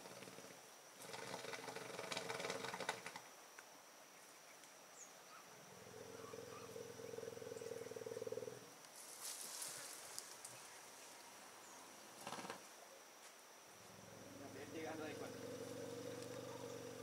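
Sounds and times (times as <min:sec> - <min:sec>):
dry brush crackling: 0:08.8 - 0:11.2
elephant rumbling: 0:13.9 - 0:17.0.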